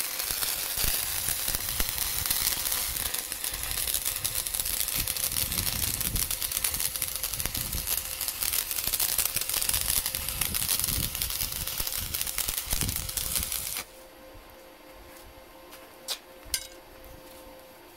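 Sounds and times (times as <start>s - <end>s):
welding arc crackling: 0.0s - 13.9s.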